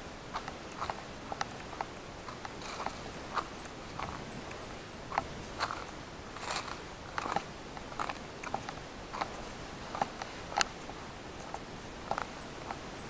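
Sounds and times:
footsteps crunching on dry ground: 0:00.0 - 0:10.5.

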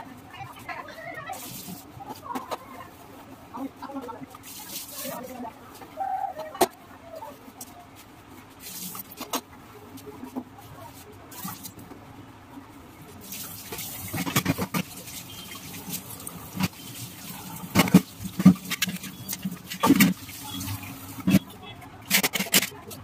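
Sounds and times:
scrubbing: 0:13.2 - 0:21.5.

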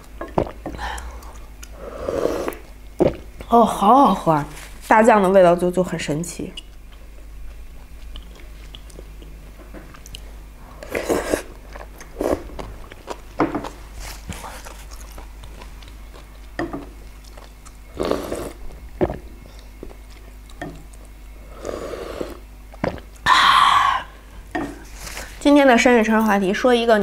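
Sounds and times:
close-up chewing: 0:00.0 - 0:01.8, 0:06.6 - 0:21.4.

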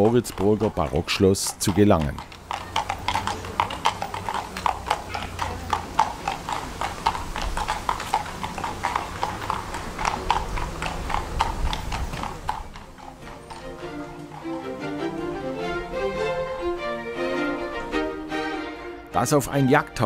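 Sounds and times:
hooves clip-clopping on asphalt: 0:00.0 - 0:16.0.

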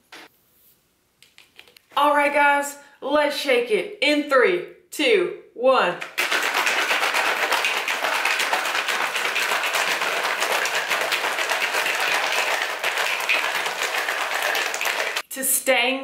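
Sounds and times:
shaker bottle rattling: 0:06.0 - 0:15.2.

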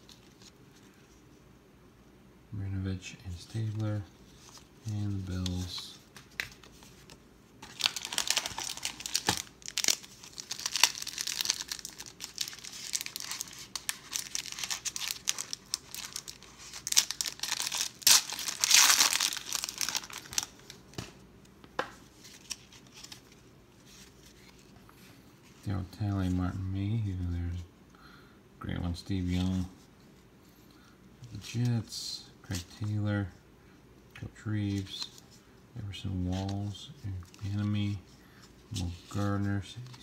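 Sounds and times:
foil wrapper crinkling and tearing: 0:07.6 - 0:20.8.

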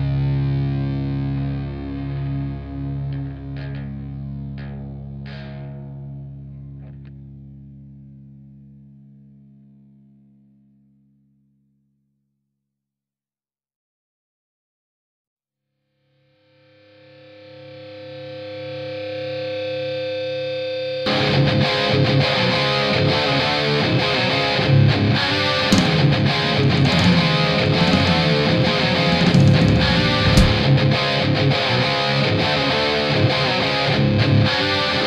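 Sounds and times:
hard rock band: 0:25.5 - 0:31.0
distorted electric guitar chord: 0:25.7 - 0:30.9.

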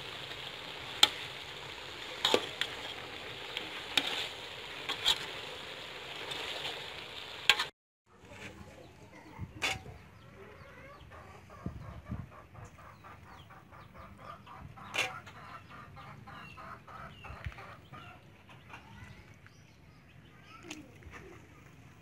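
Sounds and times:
hen clucking: 0:09.6 - 0:18.9.

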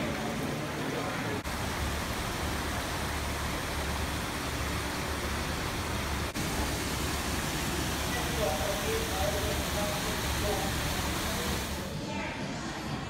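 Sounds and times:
water running over rocks: 0:00.0 - 0:11.9.

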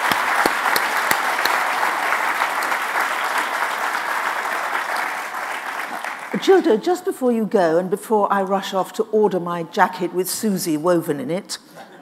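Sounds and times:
large audience applauding: 0:00.0 - 0:06.4.

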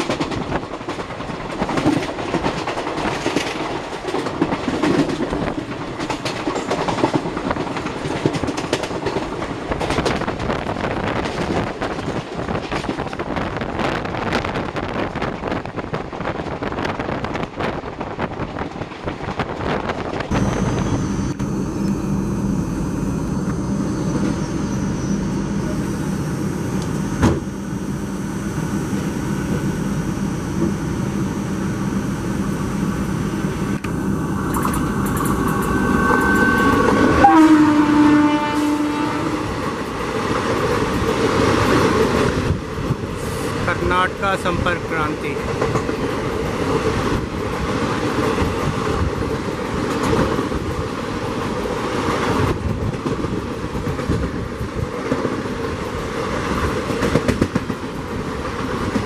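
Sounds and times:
train wheels clattering on rails: 0:00.0 - 0:20.3, 0:39.4 - 0:59.0
steady train running hum: 0:00.0 - 0:59.0.

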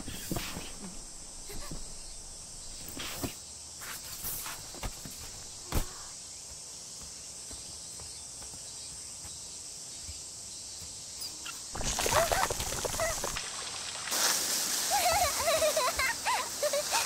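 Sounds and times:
faint high hiss: 0:11.3 - 0:17.0
water rushing into paddling pool: 0:11.8 - 0:17.0.

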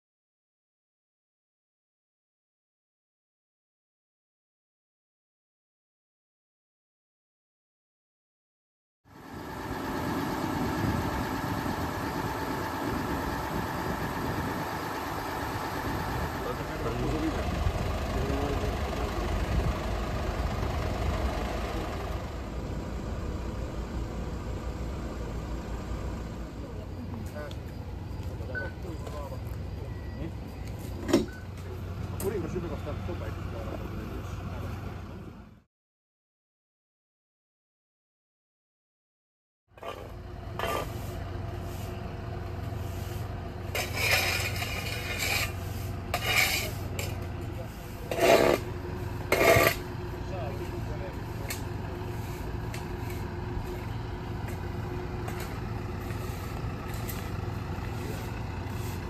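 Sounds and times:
vehicle engines idling: 0:09.1 - 0:35.6, 0:39.8 - 0:59.0.

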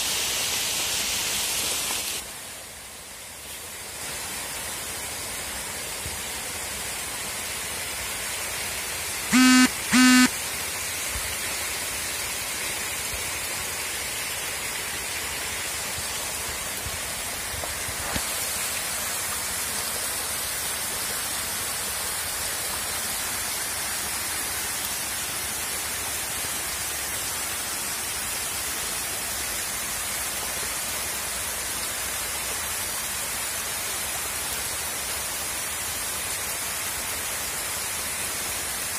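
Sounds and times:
loud pitched honks: 0:09.3 - 0:10.3.

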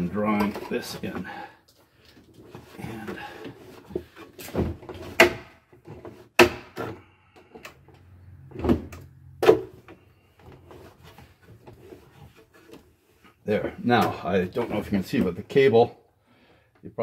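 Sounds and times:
wooden knocks and clunks: 0:02.4 - 0:07.6, 0:08.5 - 0:12.8.

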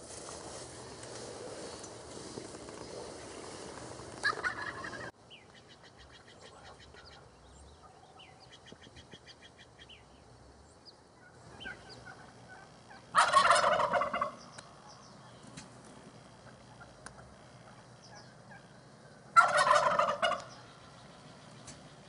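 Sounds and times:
small birds chirping: 0:00.5 - 0:13.2, 0:13.8 - 0:22.0
turkey gobbling: 0:04.2 - 0:09.6, 0:11.2 - 0:15.7, 0:16.4 - 0:20.8.

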